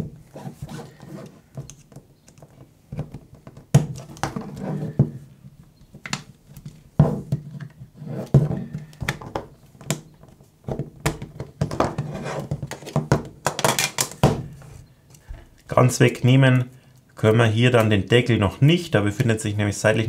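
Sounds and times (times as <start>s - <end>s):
tool scraping phone frame: 0.0s - 1.8s, 4.4s - 5.2s
plastic clips popping: 12.6s - 14.5s.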